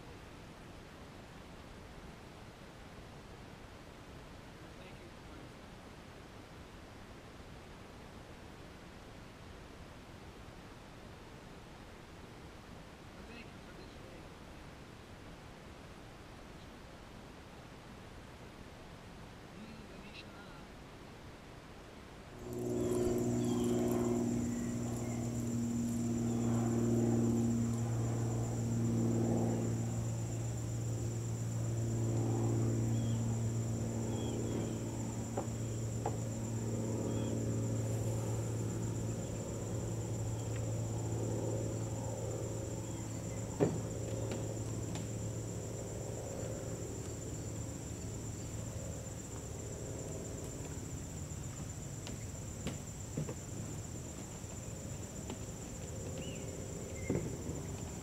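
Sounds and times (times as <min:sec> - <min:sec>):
low wavering drone: 0:22.4 - 0:51.4
insect chorus trilling: 0:22.4 - 0:58.0.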